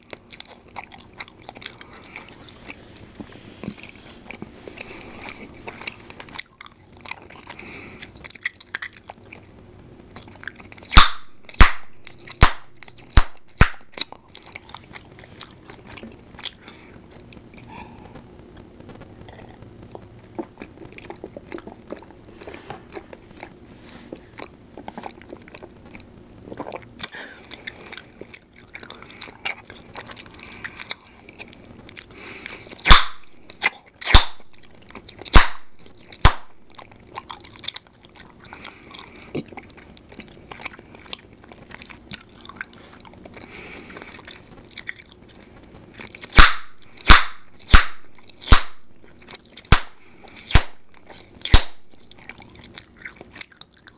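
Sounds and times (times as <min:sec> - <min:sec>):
gum chewing wet smacking: 0:00.0 - 0:17.7, 0:19.2 - 0:53.9
bubble gum popping: 0:10.9 - 0:14.1, 0:32.8 - 0:33.4, 0:34.1 - 0:34.7, 0:35.3 - 0:36.8, 0:46.3 - 0:48.9, 0:49.7 - 0:52.1.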